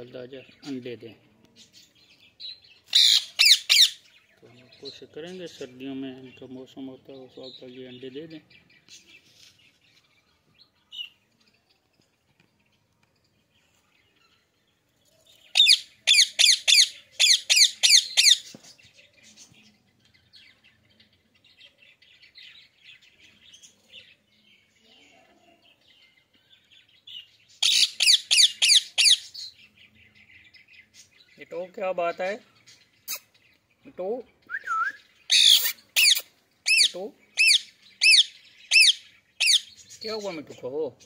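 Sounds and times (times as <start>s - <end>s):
parakeets chattering: 0.0s - 9.9s, 15.5s - 18.6s, 25.1s - 34.4s, 35.1s - 41.0s
parakeets screeching: 2.9s - 4.1s, 15.5s - 18.5s, 27.6s - 29.5s, 35.2s - 40.4s.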